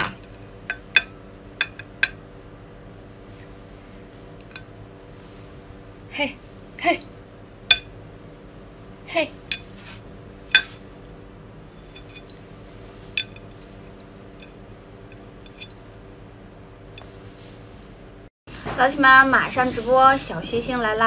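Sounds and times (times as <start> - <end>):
glass clinking against plate: 7.7 - 7.9, 10.5 - 10.8.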